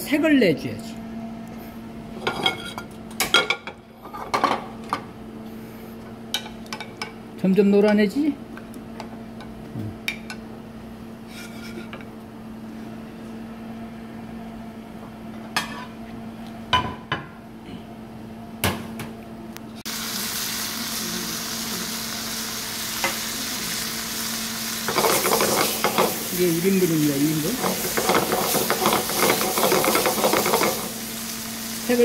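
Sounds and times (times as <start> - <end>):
fish sizzling in frying pan: 19.9 - 32.0.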